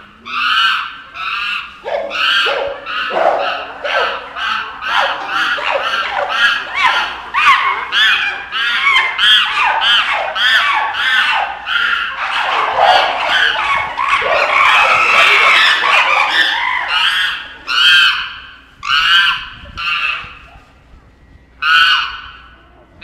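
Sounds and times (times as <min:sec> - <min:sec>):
chimpanzees screaming: 0:00.0 - 0:20.7, 0:21.6 - 0:22.6.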